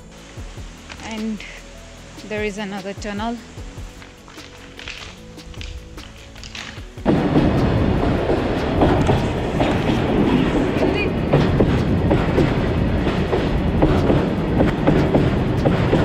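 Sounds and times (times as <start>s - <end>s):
train rolling noise: 0.0s - 16.0s
train wheels clacking on rail joints: 3.9s - 16.0s.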